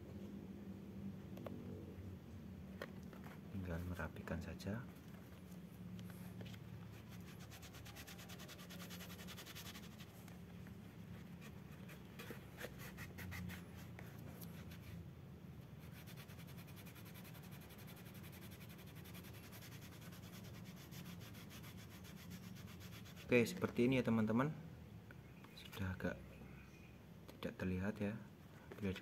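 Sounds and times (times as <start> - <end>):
cloth rubbing scratchy strokes: 6.1 - 10.2.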